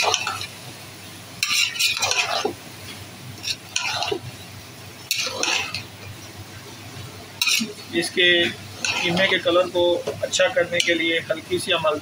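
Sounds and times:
metal spatula scraping a pot: 1.4 - 2.6, 3.4 - 4.3, 5.1 - 5.9, 7.4 - 7.8, 8.4 - 9.6.

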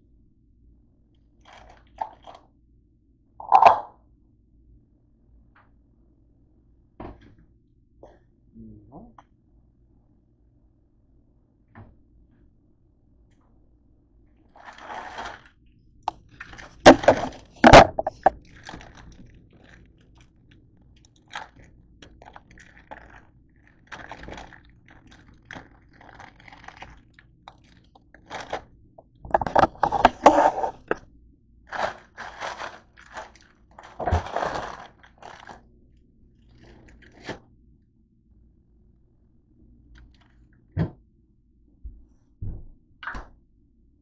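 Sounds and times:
plastic bag crinkling: 14.5 - 31.0, 31.7 - 35.6, 36.4 - 37.4.

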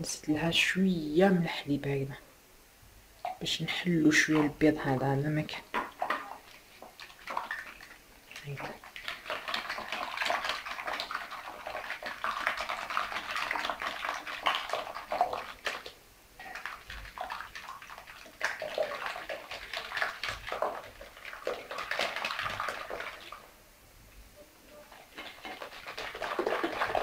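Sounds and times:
whisk beating liquid in a bowl: 5.8 - 23.5, 24.9 - 27.0.

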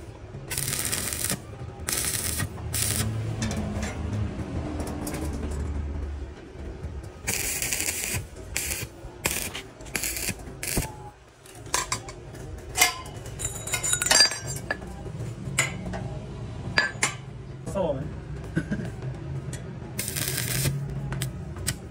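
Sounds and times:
welding arc bursts: 0.5 - 3.2, 7.3 - 10.9, 20.0 - 20.8.

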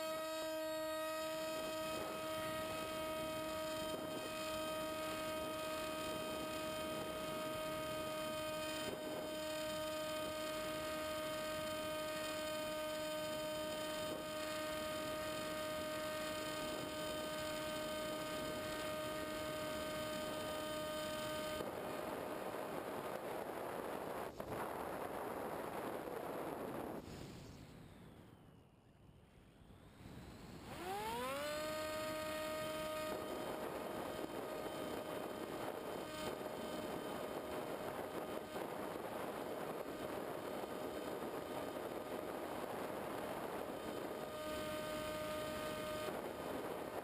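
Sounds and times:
electric motor whine: 0.0 - 47.0
rush of air: 22.0 - 28.2.

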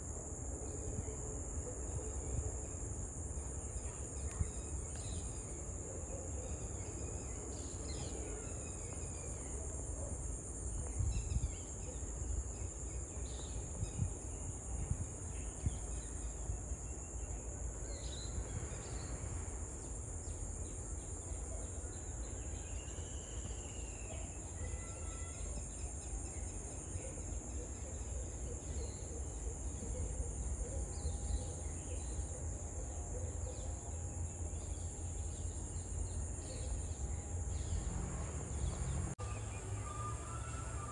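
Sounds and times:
insect chorus trilling: 0.0 - 40.9.

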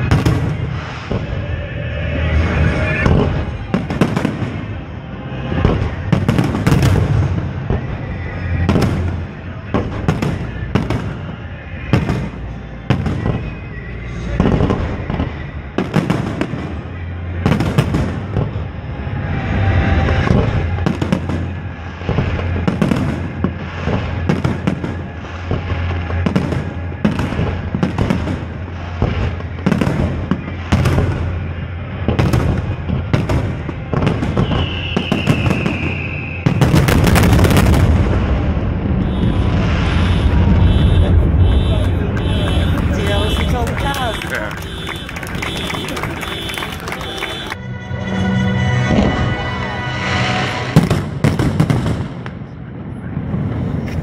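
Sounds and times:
fireworks bangs and booms: 0.0 - 47.6, 48.8 - 54.0
low rumble: 37.2 - 43.8.

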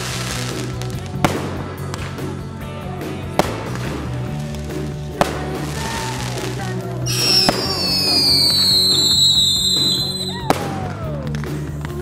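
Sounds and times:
background music: 0.0 - 12.0
fireworks banging: 0.0 - 12.0
fireworks whistling down: 5.4 - 11.2.

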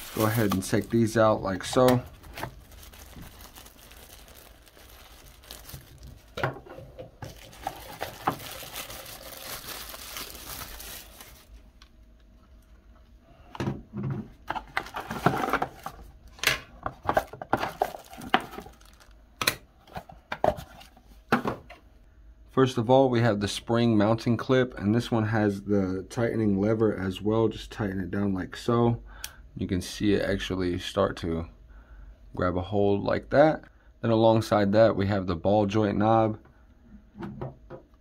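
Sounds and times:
packing wrap crinkling: 0.0 - 11.6, 17.1 - 19.2.

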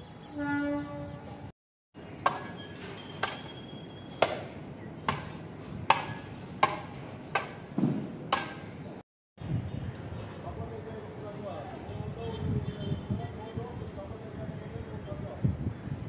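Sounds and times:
hammer striking metal: 2.2 - 2.6, 4.2 - 8.8.

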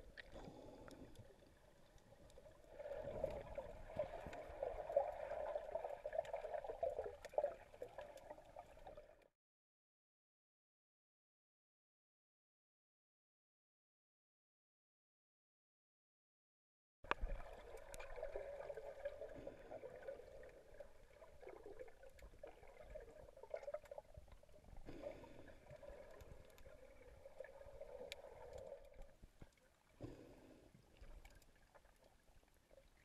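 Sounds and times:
faint clicks: 17.1 - 18.1, 25.7 - 26.8, 28.0 - 32.1.

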